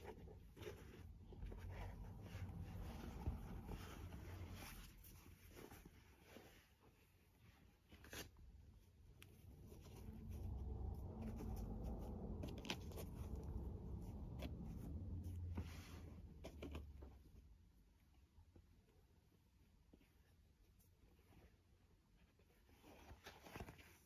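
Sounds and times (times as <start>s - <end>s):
hands rubbing fur hat: 0.0s - 16.4s
low rumble: 9.7s - 16.3s.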